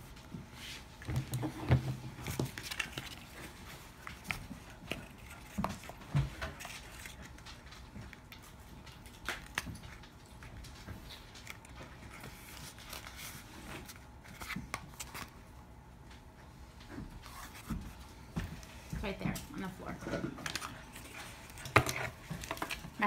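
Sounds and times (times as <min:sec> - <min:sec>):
paper rustling: 0:00.6 - 0:15.5.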